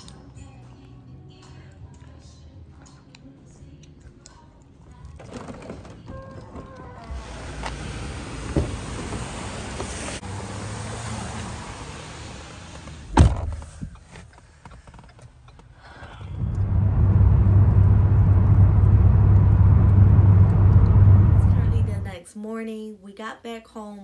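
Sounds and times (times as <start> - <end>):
car door shutting: 6.5 - 10.2, 12.4 - 13.9
car engine and tyre noise: 6.6 - 22.1.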